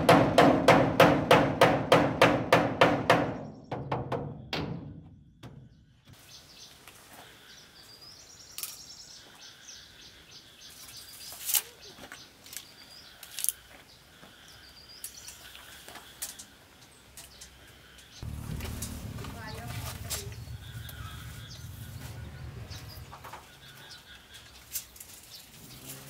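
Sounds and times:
small birds chirping: 5.6s - 26.0s.

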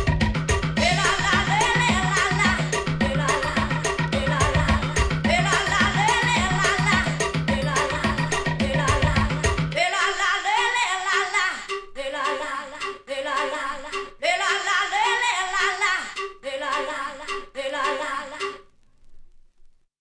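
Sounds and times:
bass and drums: 0.0s - 9.8s
person singing in short phrases: 0.8s - 18.6s.

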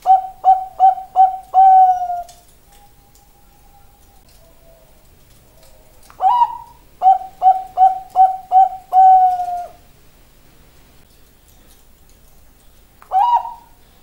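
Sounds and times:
zebra dove cooing: 0.0s - 9.9s, 13.1s - 13.8s.

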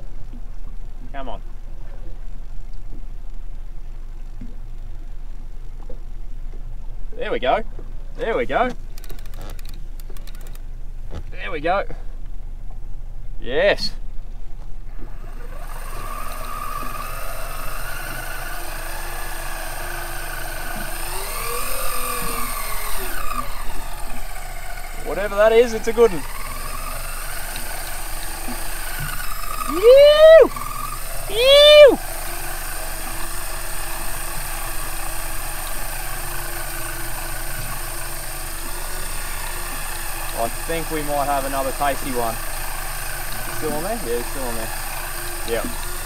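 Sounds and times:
electric fishing reel motor whining: 8.9s - 10.7s, 15.0s - 46.0s.

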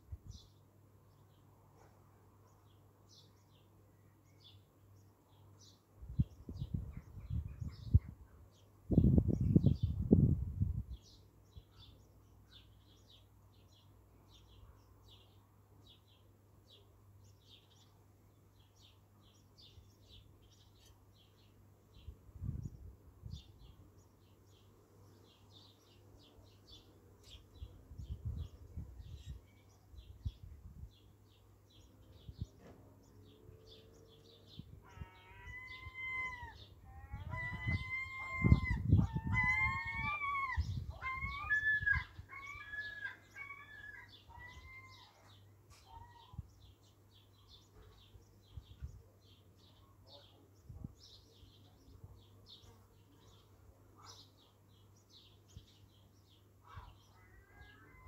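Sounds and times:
small birds chirping: 0.0s - 58.0s
low microphone rumbles: 8.9s - 11.0s
bird loud drawn-out calls: 33.1s - 46.8s, 56.6s - 58.0s.

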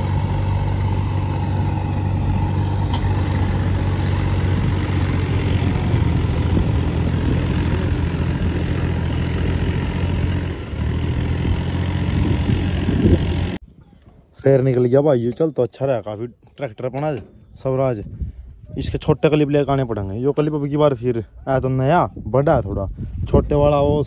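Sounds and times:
tractor diesel engine running: 0.0s - 13.6s.

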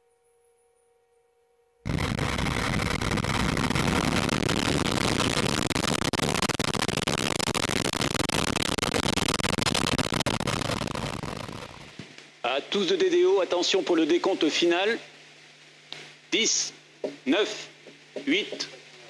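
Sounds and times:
rocket motor roaring and crackling: 1.9s - 12.0s.

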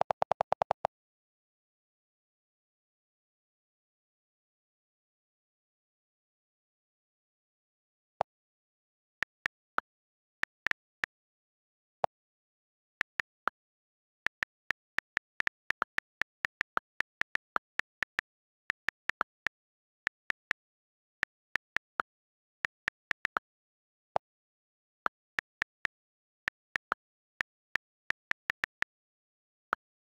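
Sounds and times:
touchscreen keyboard clicks: 0.0s - 0.9s, 14.2s - 23.4s.

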